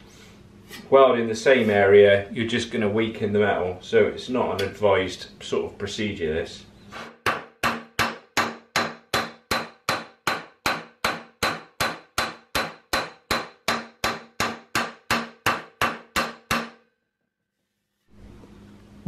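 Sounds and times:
hammer striking steel sheet: 0:07.1 - 0:16.9.

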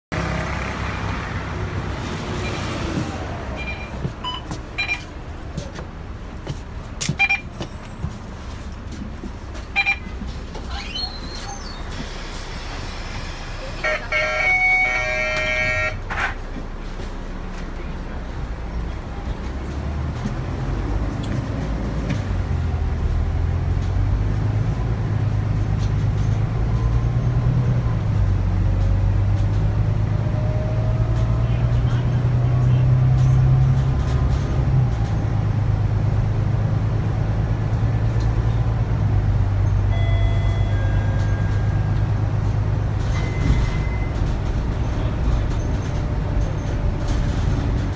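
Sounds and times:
bus engine idling: 0:00.2 - 0:30.2, 0:31.1 - 0:47.9
short electronic beeps: 0:03.6 - 0:05.1, 0:07.2 - 0:07.5, 0:09.8 - 0:10.1, 0:39.9 - 0:42.0, 0:43.1 - 0:44.2.

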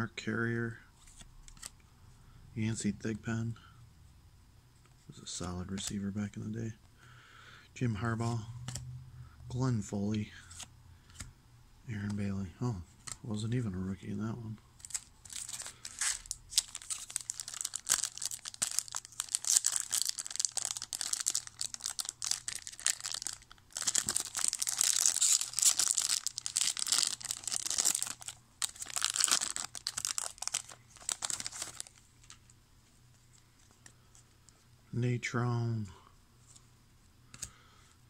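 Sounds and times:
foil wrapper crinkling and tearing: 0:14.8 - 0:32.4.

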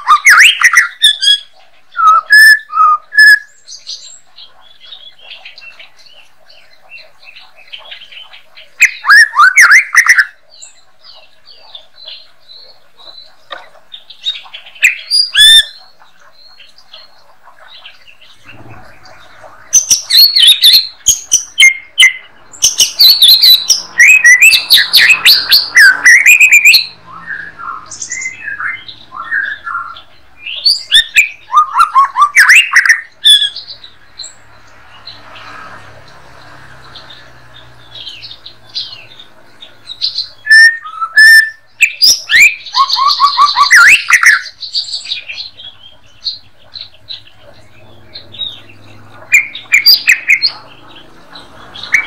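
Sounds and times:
songbird whistling rapid phrases: 0:00.0 - 0:04.1, 0:08.8 - 0:10.6, 0:14.7 - 0:17.1, 0:18.4 - 0:34.0, 0:37.1 - 0:52.0
quiet bird calls: 0:00.0 - 0:52.0.

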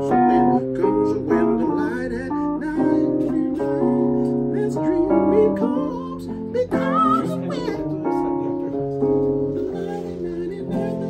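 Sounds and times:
electric piano chords: 0:00.0 - 0:11.0
man singing wordless vocal runs: 0:09.7 - 0:11.0.

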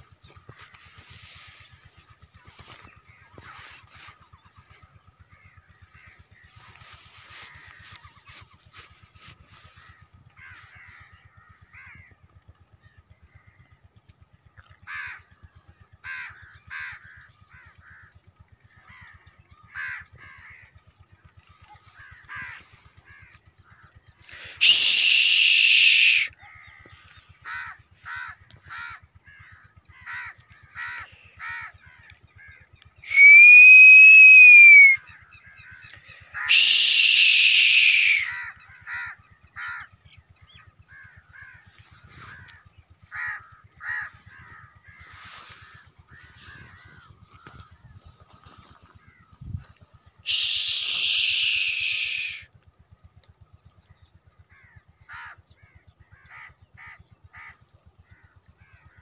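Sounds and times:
faint low pulsing hum: 0:00.0 - 0:33.1, 0:38.1 - 0:59.0
crows cawing: 0:00.0 - 0:33.7, 0:34.4 - 0:52.5, 0:54.4 - 0:59.0.

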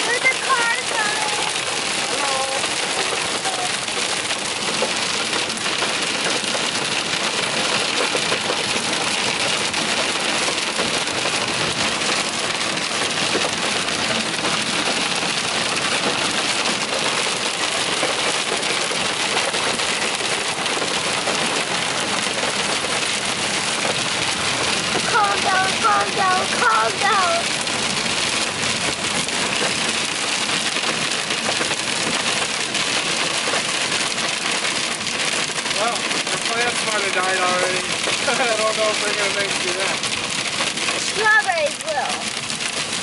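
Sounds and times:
hail and rain on car roof: 0:00.0 - 0:43.0.

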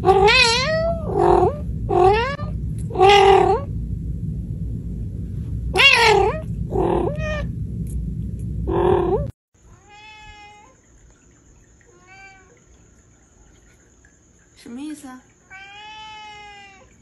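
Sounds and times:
cat meowing: 0:00.0 - 0:03.6, 0:09.7 - 0:10.7, 0:15.5 - 0:16.9
low background rumble: 0:00.0 - 0:11.9.

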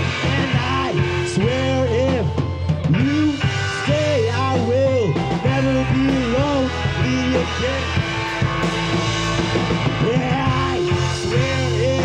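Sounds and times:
rock band playing live: 0:00.0 - 0:12.0
sliding guitar melody: 0:00.0 - 0:12.0.

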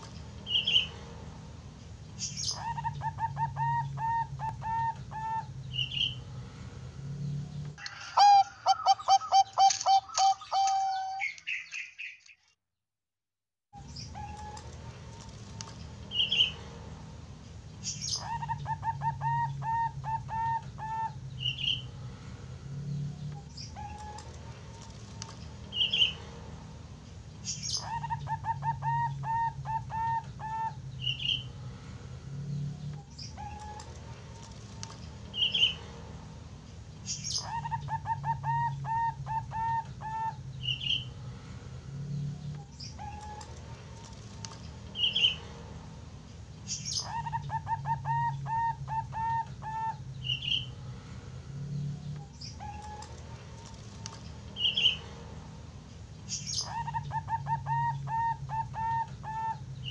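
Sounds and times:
dove deep cooing: 0:02.6 - 0:05.6, 0:08.2 - 0:11.2, 0:18.2 - 0:21.2, 0:27.8 - 0:30.8, 0:37.4 - 0:40.4, 0:47.0 - 0:50.0, 0:56.7 - 0:59.6.

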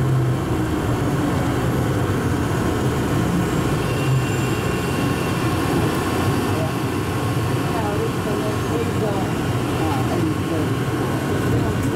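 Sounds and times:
train running through tunnel: 0:00.0 - 0:11.9.

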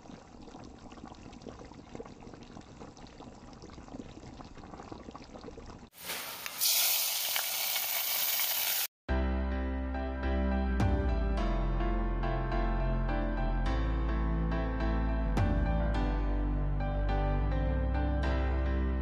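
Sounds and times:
food bubbling softly: 0:00.0 - 0:08.7
loud sizzle of hot ghee: 0:05.9 - 0:08.9
background music: 0:09.1 - 0:19.0.

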